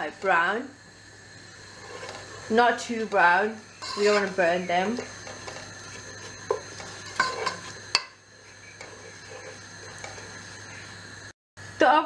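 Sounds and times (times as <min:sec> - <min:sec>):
onions sizzling in oil: 0:00.0 - 0:12.0
spatula scraping pan: 0:01.5 - 0:11.1
spatula knocking pan: 0:03.8 - 0:10.4.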